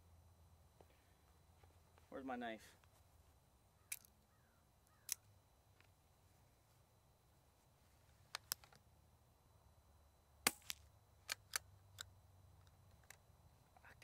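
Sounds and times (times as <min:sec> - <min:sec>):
rifle bolt metallic clicks: 0:10.5 - 0:13.2.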